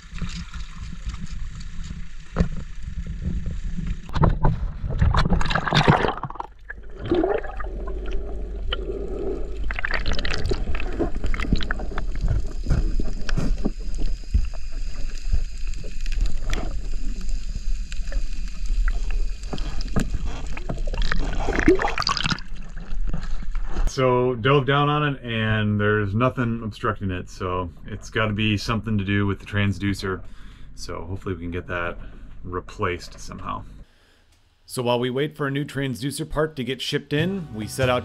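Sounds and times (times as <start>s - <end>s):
underwater knocks and clicks: 0.0s - 8.8s, 9.6s - 17.0s
water splashing: 0.0s - 23.5s
muffled underwater current rumble: 0.0s - 23.9s.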